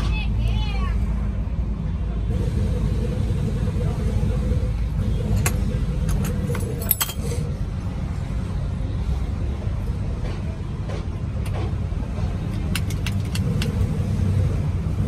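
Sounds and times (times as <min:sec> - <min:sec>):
steady low rumble: 0:00.0 - 0:15.0
metal-on-metal clinks: 0:06.1 - 0:07.4.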